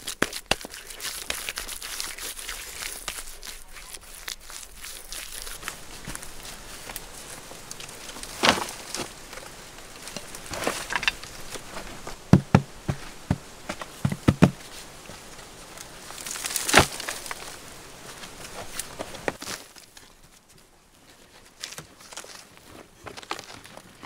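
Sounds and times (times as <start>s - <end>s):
soil scraped by hand: 0.0s - 19.6s
dull thumps: 10.5s - 14.7s.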